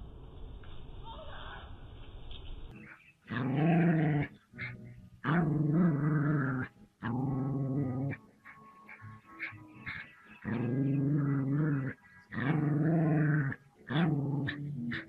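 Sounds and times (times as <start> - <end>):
dog growling: 3.3 - 15.0.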